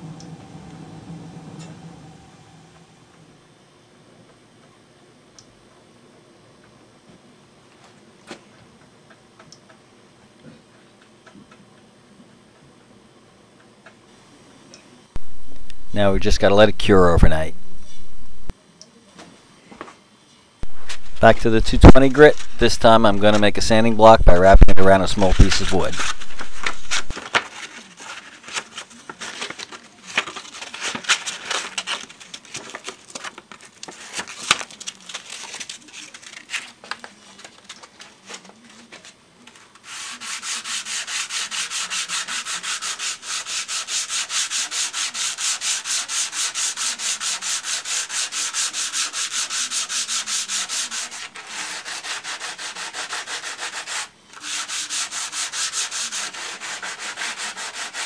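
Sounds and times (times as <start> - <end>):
sandpaper sanding strokes: 20.6 - 27.1, 39.8 - 58.0.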